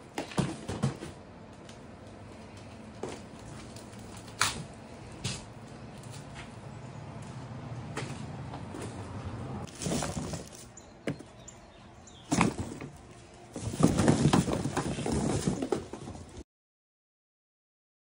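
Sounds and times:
cardboard knocks and rustles: 0:00.2 - 0:01.2, 0:12.3 - 0:12.9, 0:13.6 - 0:16.4
plush toy rustling and rubbing: 0:09.6 - 0:10.6.

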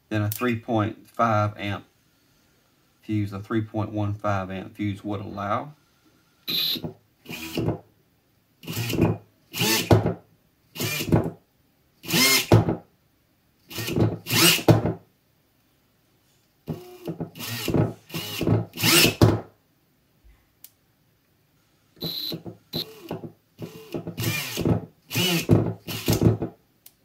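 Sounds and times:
drill motor spinning up: 0:06.5 - 0:07.7, 0:08.6 - 0:09.9, 0:10.8 - 0:11.1, 0:12.0 - 0:12.5, 0:13.7 - 0:14.7, 0:16.8 - 0:19.2, 0:22.0 - 0:26.4.

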